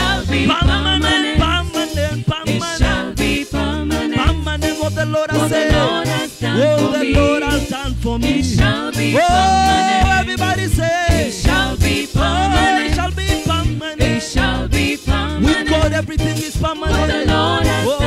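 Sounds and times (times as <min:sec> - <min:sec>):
backing singers: 0:00.0 - 0:04.7, 0:05.3 - 0:13.1, 0:16.8 - 0:18.0
band playing reggae: 0:00.0 - 0:18.0
lead singer: 0:00.0 - 0:18.0.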